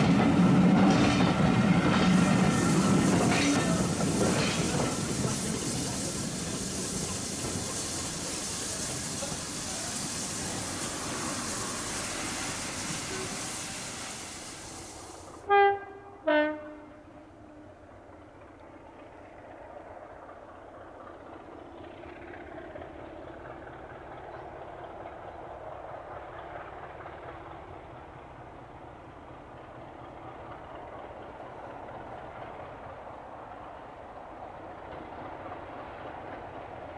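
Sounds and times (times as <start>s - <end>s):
train running noise: 0.0s - 36.9s
two-tone train horn blasts: 15.4s - 17.6s.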